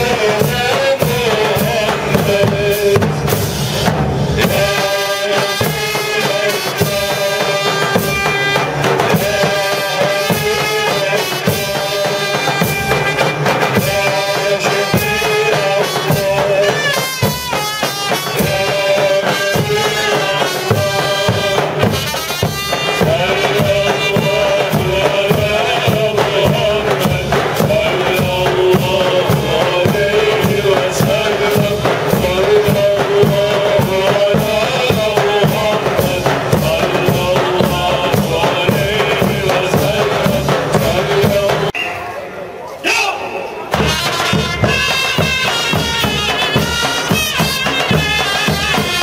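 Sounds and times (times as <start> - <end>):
big drums beating: 0.0 - 41.8, 43.7 - 49.0
frame drums: 0.0 - 41.8, 43.7 - 49.0
cymbals: 0.0 - 49.0.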